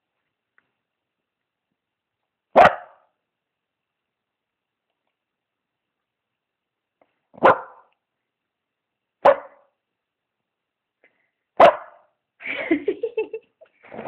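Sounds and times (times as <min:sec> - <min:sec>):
dog barking: 0:02.5 - 0:03.1, 0:07.4 - 0:07.9, 0:09.2 - 0:09.7, 0:11.6 - 0:12.1.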